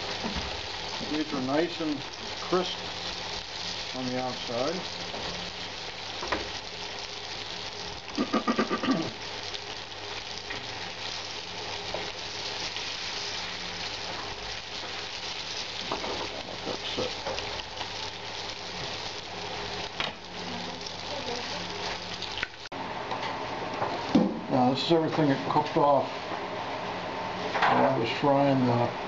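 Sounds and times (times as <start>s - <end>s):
meat sizzling in oil: 0.0s - 22.8s.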